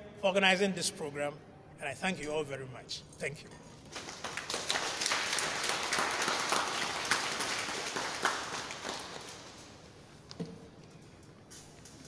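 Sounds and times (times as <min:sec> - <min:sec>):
audience applauding: 0:03.9 - 0:09.8.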